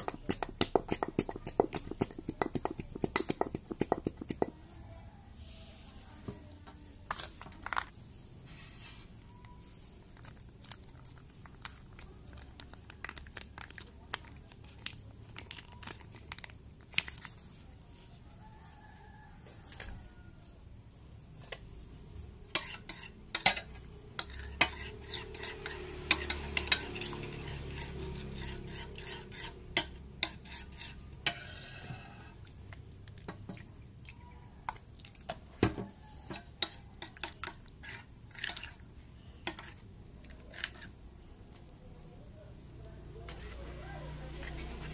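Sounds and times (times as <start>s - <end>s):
metal spoon clinking in bowl: 22.6s - 27.6s, 31.2s - 32.1s.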